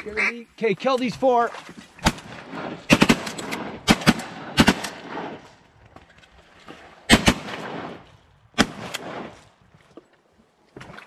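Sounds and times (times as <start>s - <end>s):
shotgun shots with echo: 2.0s - 5.5s, 7.1s - 9.5s.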